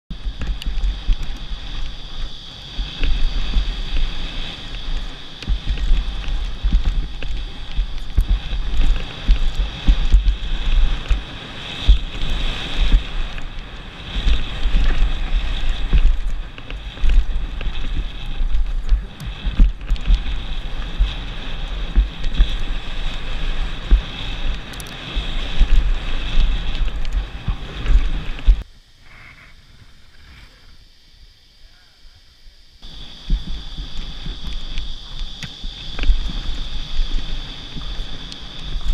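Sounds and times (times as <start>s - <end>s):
bike knocking and rattling: 0.1s - 28.6s
wind buffeting microphone: 0.1s - 28.6s, 32.8s - 38.9s.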